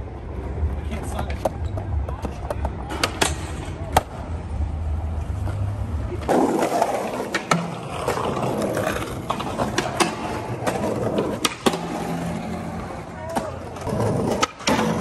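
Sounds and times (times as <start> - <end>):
skateboard wheels rolling: 0.0 - 15.0
skateboard clacks: 0.9 - 4.3, 5.2 - 15.0.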